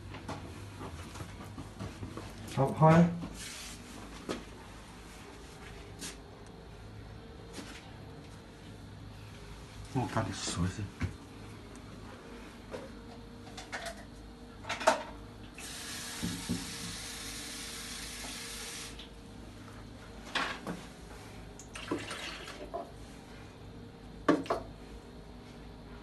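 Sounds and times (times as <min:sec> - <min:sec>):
faint steady hum: 0:03.4 - 0:26.0
water pouring in a stream: 0:21.7 - 0:22.6.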